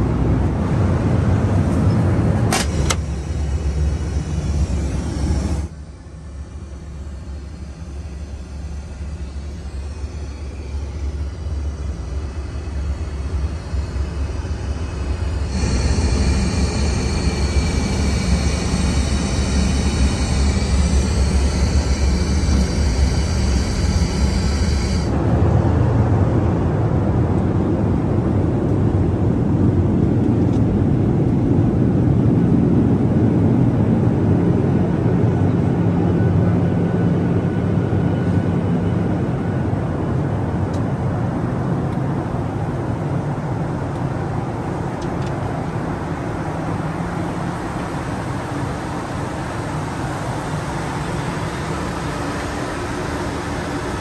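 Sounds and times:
airplane cabin rumble: 0.0 - 54.0
hiss with whistling tones: 7.0 - 25.1.

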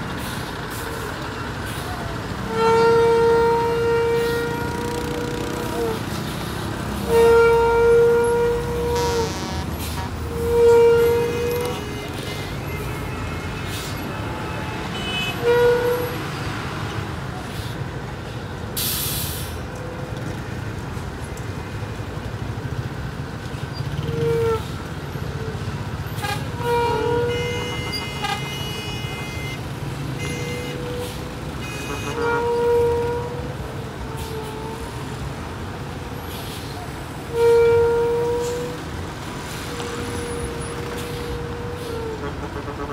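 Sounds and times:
diesel engines idling: 0.0 - 15.3
vehicle horn toots: 2.5 - 6.0, 7.0 - 16.2, 26.2 - 33.5, 37.3 - 38.8
air brake hiss: 18.8 - 19.6, 36.2 - 36.8.

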